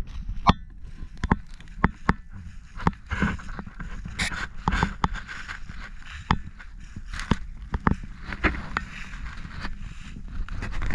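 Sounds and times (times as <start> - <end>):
footsteps on dry grass: 0.0 - 10.9
grass rustling: 0.0 - 10.9.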